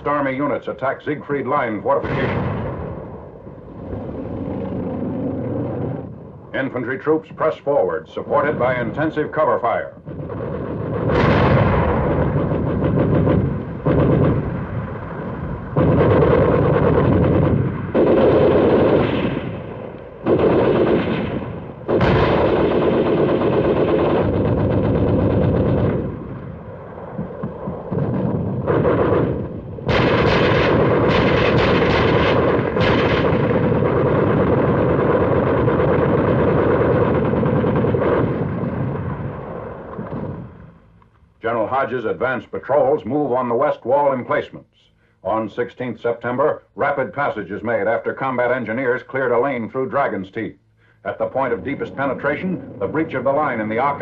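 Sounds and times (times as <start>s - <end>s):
machine-gun fire bursts: 10.1s - 14.7s, 15.8s - 19.6s, 20.2s - 26.3s, 27.4s - 39.2s.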